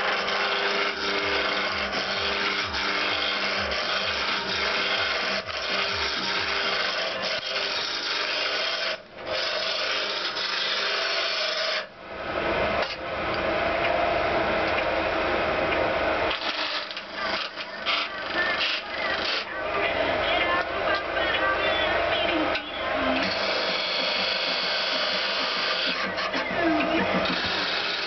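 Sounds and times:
wood lathe tool cutting wood: 0:00.0 - 0:11.9, 0:16.3 - 0:19.5, 0:22.5 - 0:28.0.

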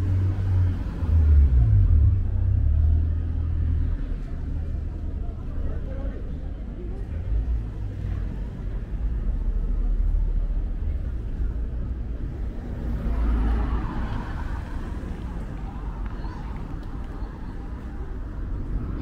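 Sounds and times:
traffic rumble: 0:00.0 - 0:19.0
vehicle passing close by: 0:12.5 - 0:16.6.

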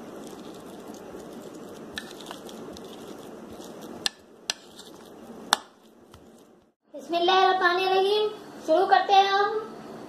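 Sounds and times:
spoon mashing potatoes in a bowl: 0:00.0 - 0:06.6.

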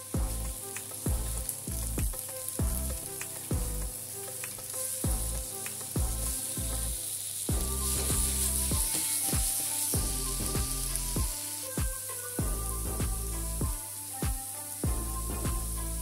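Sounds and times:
background music with a beat: 0:00.0 - 0:16.0
vegetables sizzling in a frying pan: 0:00.0 - 0:16.0
spatula stirring in a pan: 0:00.2 - 0:12.4.

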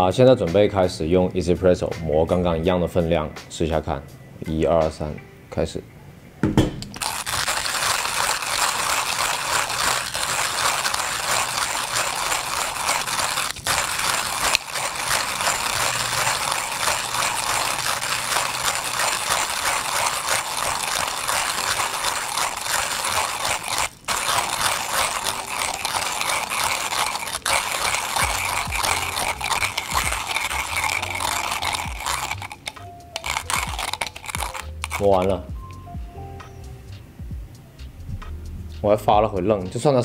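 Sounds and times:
hand coffee grinder crunching beans: 0:06.9 - 0:35.8.

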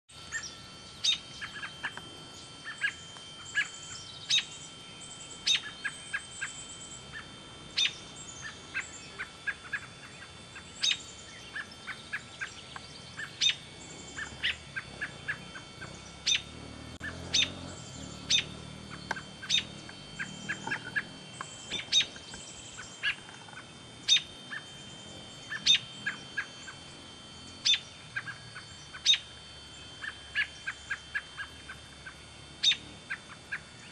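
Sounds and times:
bird chick call notes: 0:05.4 - 0:26.8.

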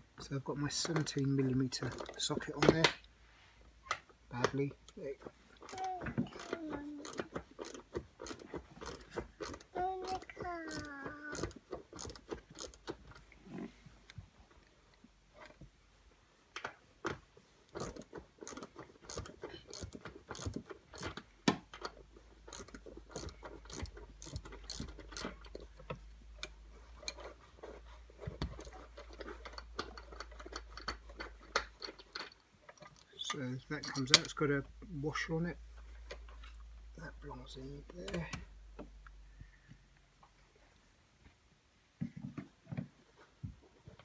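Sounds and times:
ratchet clicking: 0:05.6 - 0:13.0, 0:17.7 - 0:21.2, 0:21.8 - 0:25.8.

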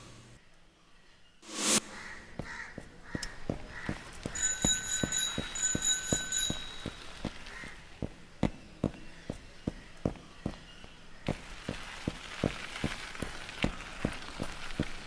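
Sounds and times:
footsteps on paved road: 0:02.0 - 0:15.0
bell ringing: 0:04.4 - 0:07.2.

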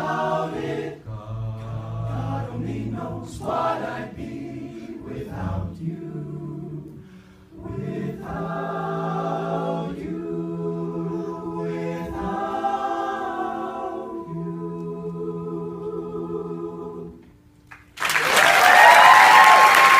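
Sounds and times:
male a cappella group singing: 0:00.0 - 0:17.3
audience applause: 0:17.7 - 0:19.9.

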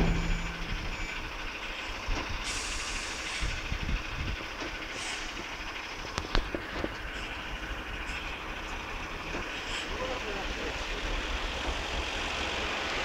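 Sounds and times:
faint beep: 0:00.0 - 0:01.3
bin lorry engine running: 0:00.0 - 0:13.0.

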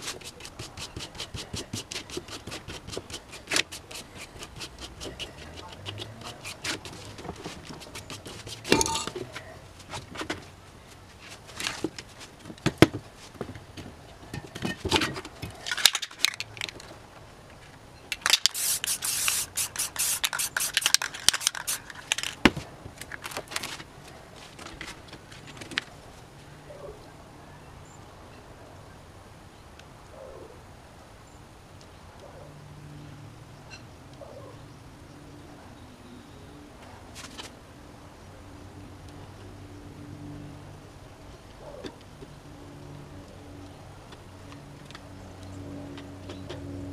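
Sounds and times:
cans clicking: 0:08.7 - 0:09.3, 0:18.1 - 0:22.4
spray paint can hissing: 0:18.2 - 0:22.4
paper rustling: 0:18.6 - 0:25.9.

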